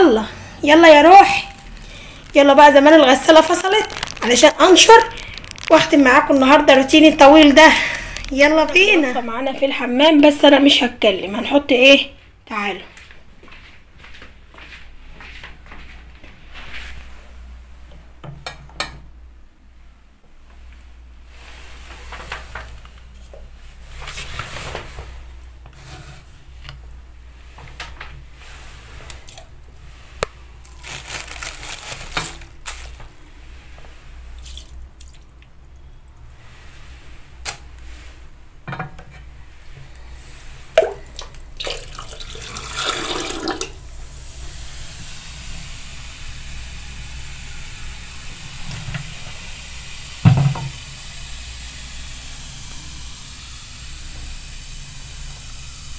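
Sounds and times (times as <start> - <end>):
liquid pouring into drain: 40.7 - 43.8.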